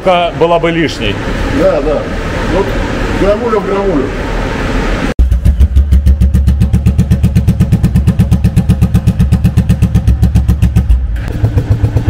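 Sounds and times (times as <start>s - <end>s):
motorcycle idling: 5.2s - 12.0s.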